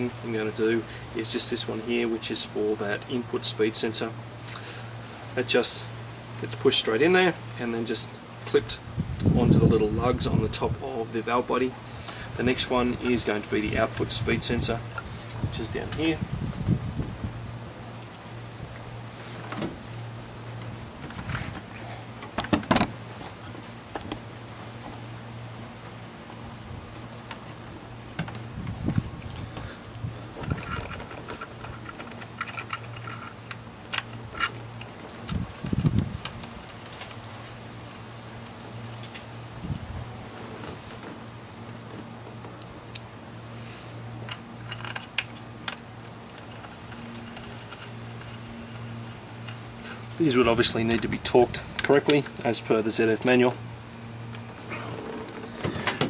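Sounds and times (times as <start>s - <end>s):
steady low hum: 0.0s - 56.0s
handling clicks and knocks: 30.3s - 37.4s, 50.8s - 52.5s.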